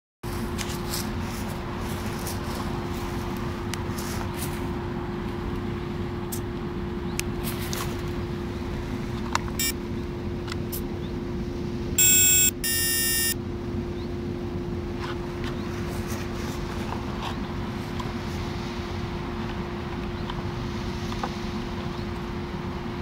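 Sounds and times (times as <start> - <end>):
steady low hum: 0.2 - 23.0
loud electronic beeps: 12.0 - 13.4.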